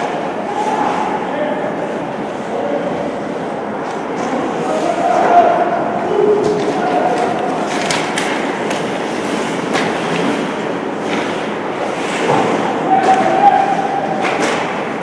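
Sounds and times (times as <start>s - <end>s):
scattered voices: 0.0s - 8.7s.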